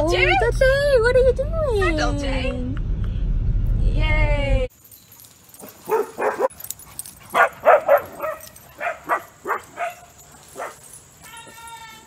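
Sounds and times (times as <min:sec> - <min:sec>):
dogs barking: 0:05.6 - 0:11.5.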